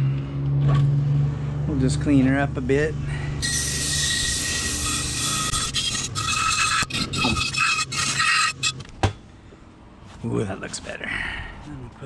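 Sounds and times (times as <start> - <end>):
electric motor humming: 3.4 - 8.6
wire brush wheel scraping metal: 3.4 - 8.9.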